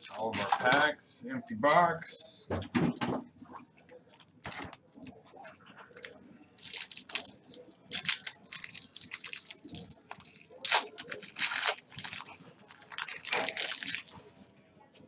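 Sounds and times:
foil pack crinkling and tearing: 0:05.9 - 0:14.2.

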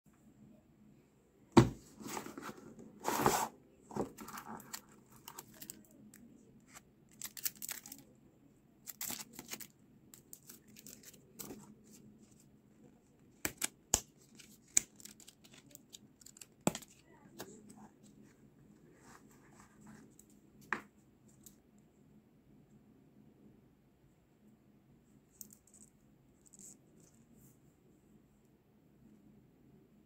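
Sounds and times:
plastic and card crinkling: 0:03.1 - 0:08.1, 0:08.8 - 0:12.5, 0:13.4 - 0:17.7.

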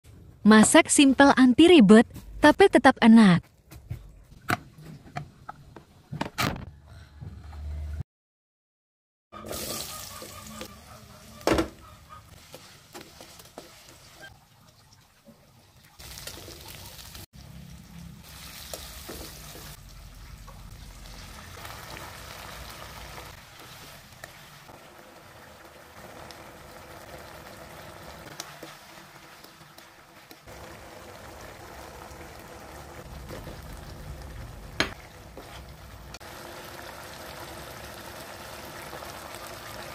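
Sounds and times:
food sizzling in hot oil: 0:09.4 - 0:10.7, 0:12.0 - 0:14.5, 0:15.8 - 0:39.9
sauce bubbling: 0:19.6 - 0:39.9.

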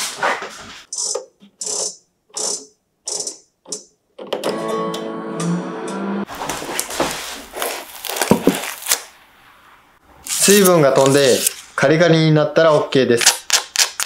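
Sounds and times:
plucked guitar notes: 0:04.4 - 0:06.3.

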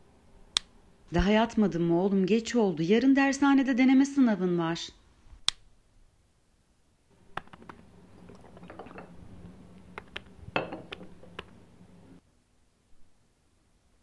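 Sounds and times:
faint steady hum: 0:00.0 - 0:14.0
drink clinks: 0:10.6 - 0:10.9.

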